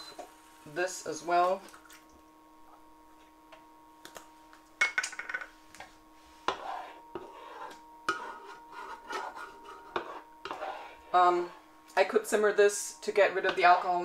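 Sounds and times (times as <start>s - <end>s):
spatula scraping frying pan: 6.4s - 11.3s.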